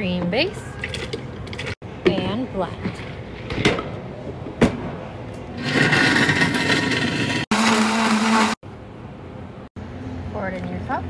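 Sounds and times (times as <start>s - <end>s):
blender crushing ice: 5.6s - 8.6s.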